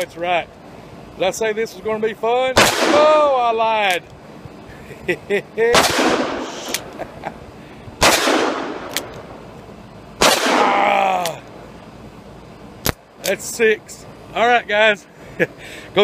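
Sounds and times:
man exclaiming: 2.9s - 3.9s, 10.5s - 11.5s
revolver shots with ringing tail: 8.0s - 9.3s, 10.2s - 10.8s.

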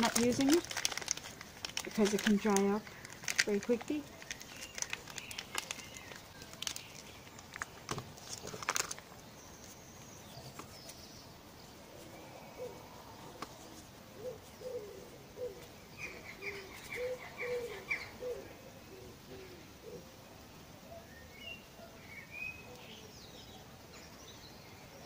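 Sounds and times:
hands clicking and crinkling: 0.0s - 11.0s, 13.3s - 14.5s
bird cooing: 12.0s - 20.2s
bird chirps: 14.2s - 20.0s.

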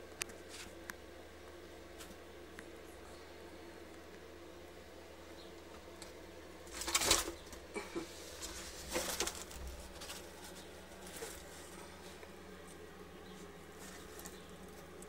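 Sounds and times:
faint low hum: 0.0s - 15.0s
leaves rustling and scraping: 6.6s - 15.0s.

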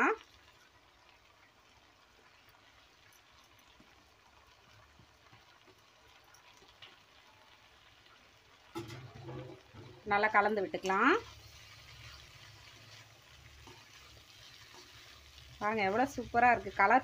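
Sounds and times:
woman speaking: 0.0s - 0.2s, 10.0s - 11.3s, 15.6s - 17.0s
faint low sizzle of stir-fry: 0.0s - 17.0s.

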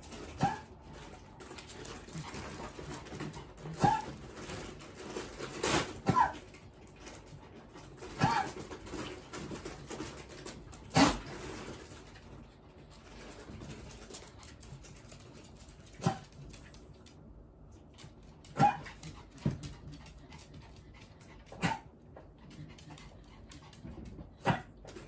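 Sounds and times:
dog barking: 18.6s - 18.8s, 21.6s - 21.8s.

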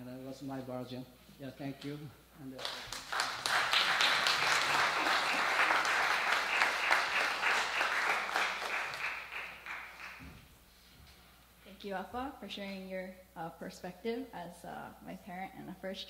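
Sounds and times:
audience applauding: 2.6s - 10.4s.

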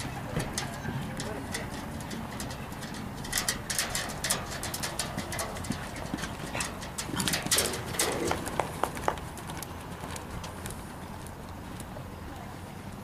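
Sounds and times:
horse hoofbeats on sand: 0.0s - 11.7s.

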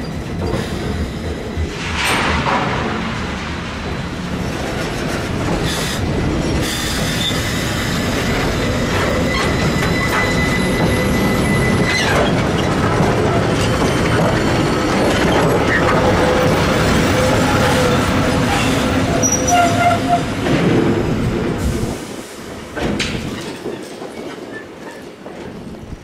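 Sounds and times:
train wheels rumbling on rails: 0.0s - 26.0s
wheel squeals: 6.4s - 16.4s, 18.5s - 20.3s.

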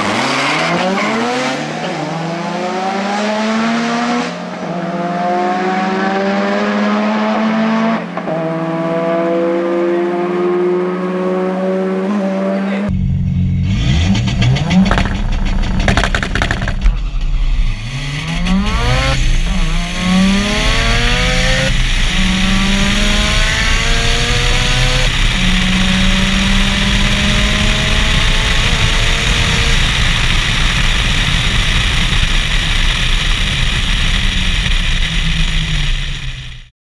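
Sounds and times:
race car engine accelerating: 0.0s - 36.6s
wind and road noise: 0.0s - 36.7s
engine crackling: 12.9s - 36.7s.

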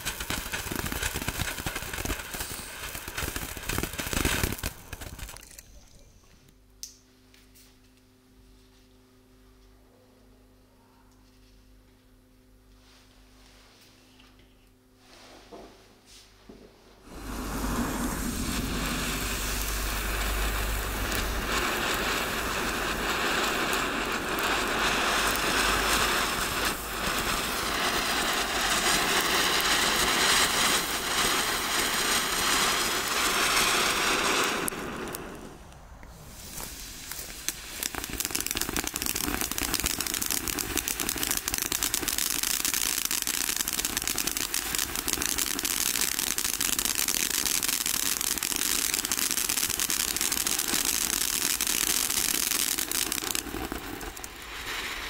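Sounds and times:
dense soft crackling: 0.0s - 6.5s, 17.1s - 47.7s, 48.4s - 55.0s
firework fountain hissing: 0.0s - 6.5s, 17.0s - 55.0s.

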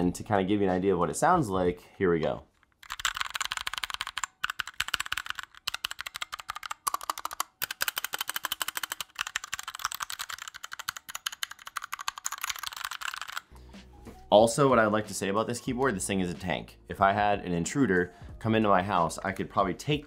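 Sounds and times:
mechanical keyboard typing: 2.7s - 13.5s.

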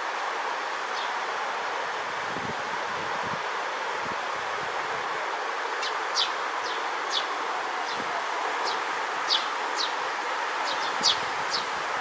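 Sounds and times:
background hiss: 0.0s - 12.0s
sparrow chirps: 9.3s - 9.9s, 10.7s - 11.7s.

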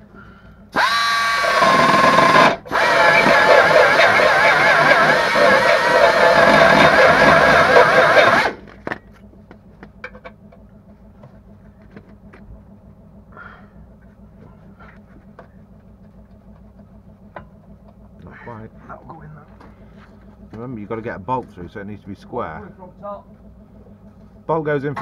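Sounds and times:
power tool motor running: 0.7s - 8.8s.

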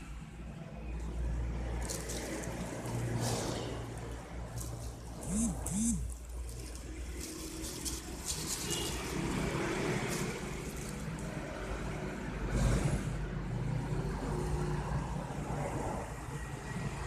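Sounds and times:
vehicle engine rumbling: 0.0s - 17.0s
plastic wrap and lettuce rustling: 6.0s - 11.4s.

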